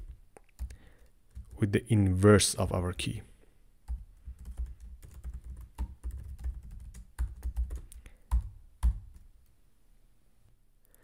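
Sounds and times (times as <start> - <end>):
typing on computer keyboard: 0.0 - 1.6, 3.9 - 9.3.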